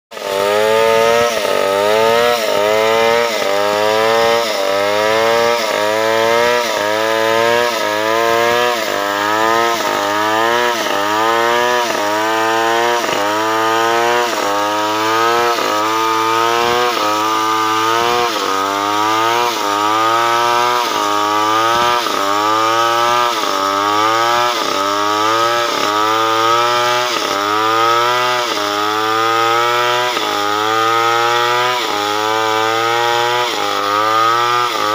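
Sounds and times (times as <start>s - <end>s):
chainsaw cutting log: 0.1s - 34.9s.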